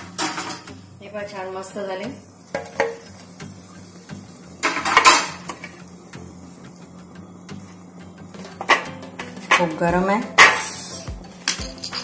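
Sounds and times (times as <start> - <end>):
metal utensil clinking: 4.6 - 5.8, 11.4 - 12.0.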